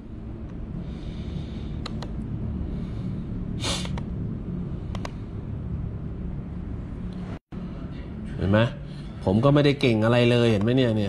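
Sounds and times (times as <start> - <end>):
low hum and rumble: 0.0 - 11.0
short breathy hiss: 3.6 - 4.0.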